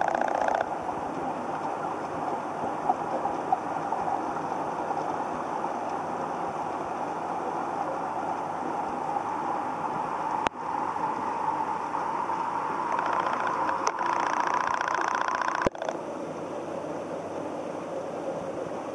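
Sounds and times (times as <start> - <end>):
faint clicks: 0.0 - 3.6, 12.9 - 16.0
muffled underwater rushing: 0.0 - 18.9.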